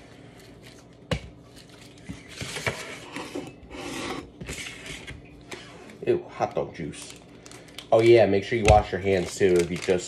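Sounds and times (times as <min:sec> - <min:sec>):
plastic package crinkling: 0:06.8 - 0:10.0.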